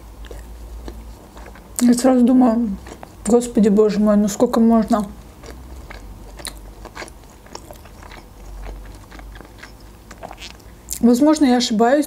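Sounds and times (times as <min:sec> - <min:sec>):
person chewing: 0:00.0 - 0:03.8, 0:04.8 - 0:11.7
small mouth clicks: 0:05.4 - 0:11.0.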